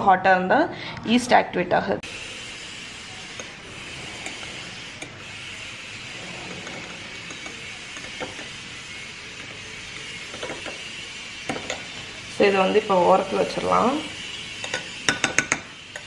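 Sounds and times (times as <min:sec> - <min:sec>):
fork scraping in bowl: 0:03.2 - 0:12.3, 0:14.1 - 0:16.0
fork clinking against bowl: 0:11.5 - 0:12.1, 0:14.6 - 0:16.0.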